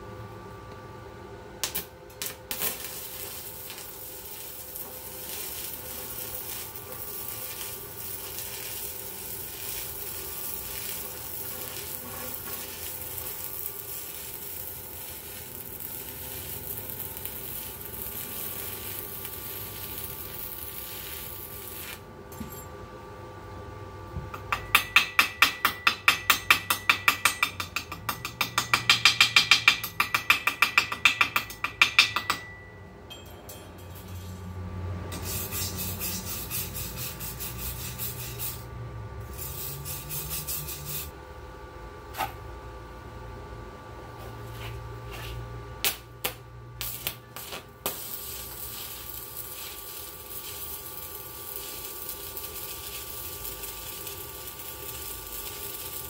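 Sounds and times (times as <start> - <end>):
arc welding crackling sizzle: 1.5 - 22.1, 35.1 - 41.2, 44.1 - 56.0
hammer chipping metal: 2.3 - 20.6, 24.4 - 34.2.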